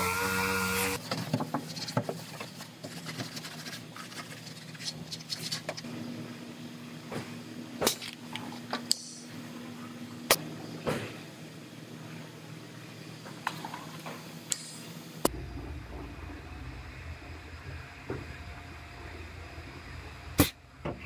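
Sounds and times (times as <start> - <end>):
pneumatic sander whining: 0.0 - 1.0
faint steady hum: 0.0 - 21.0.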